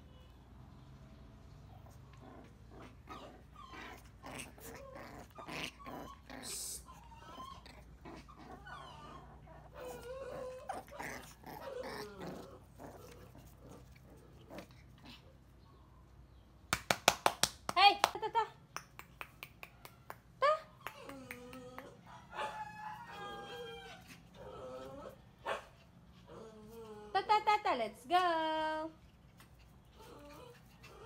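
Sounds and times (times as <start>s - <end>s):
puppies growling and yipping: 1.7s - 15.6s, 20.6s - 27.2s, 29.1s - 31.0s.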